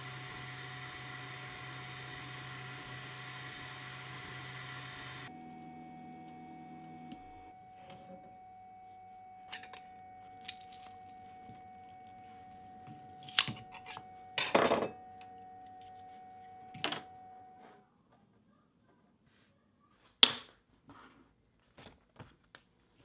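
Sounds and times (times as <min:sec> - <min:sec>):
faint steady hum: 0:00.0 - 0:17.9.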